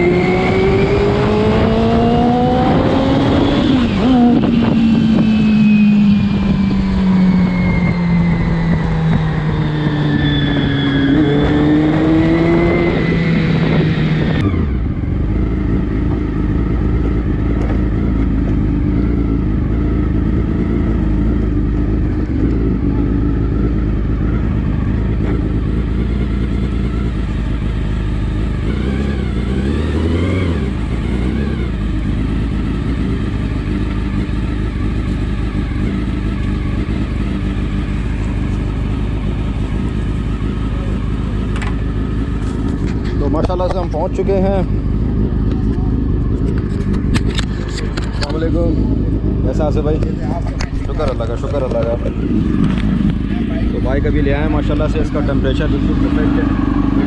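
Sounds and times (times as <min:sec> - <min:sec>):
engine revving: 0:00.0 - 0:57.0
motorcycle engine running: 0:00.0 - 0:57.0
motorcycle engine idling: 0:14.8 - 0:29.7, 0:30.6 - 0:57.0.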